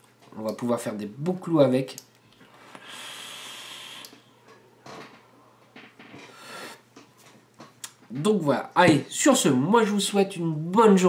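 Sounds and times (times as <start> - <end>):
breathy puffs exhaling: 2.4 - 4.3
electronic cigarette hiss: 2.5 - 4.2.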